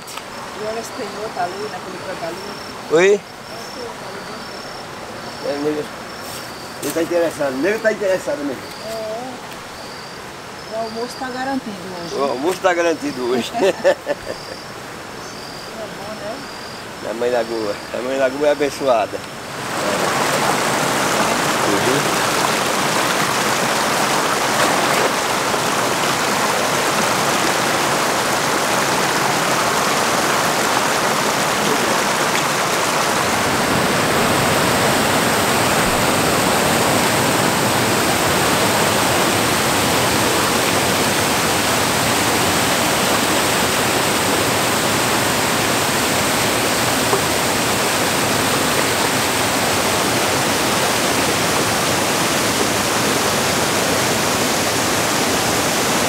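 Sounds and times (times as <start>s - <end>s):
floodwater rushing over dam: 0.0s - 56.0s.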